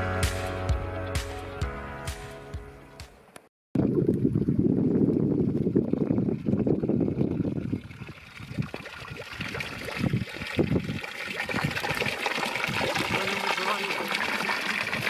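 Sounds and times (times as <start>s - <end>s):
wind rumble on microphone: 3.8s - 13.2s
water splashing into stone trough: 5.5s - 15.0s.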